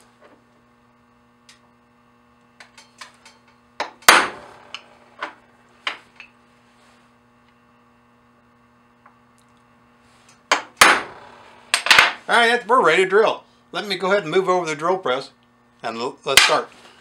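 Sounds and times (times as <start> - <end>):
hammer striking metal punch: 3.8 - 4.9, 10.5 - 12.2.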